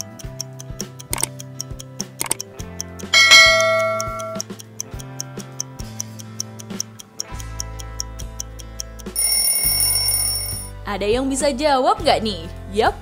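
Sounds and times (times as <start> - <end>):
clock ticking: 0.0 - 10.7
light background music: 0.0 - 13.0
bell-like chime: 3.2 - 4.4, 9.2 - 10.7.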